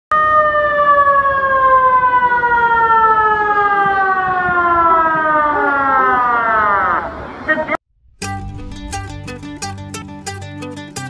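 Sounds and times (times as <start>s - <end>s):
warning siren wailing: 0.1s - 7.4s.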